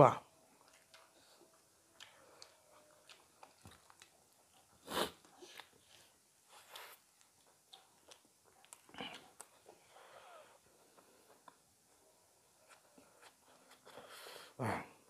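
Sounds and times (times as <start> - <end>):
soft chewing: 0.4 - 14.6
person sniffing: 4.8 - 5.7, 13.8 - 14.8.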